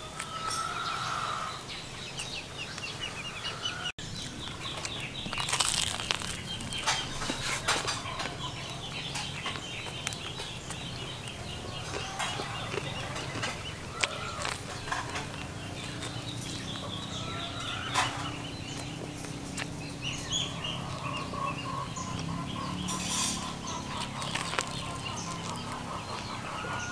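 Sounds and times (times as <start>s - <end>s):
chickens clucking: 0.0s - 26.9s
person chewing crusty bread: 4.1s - 17.4s, 18.7s - 19.8s, 23.8s - 26.2s.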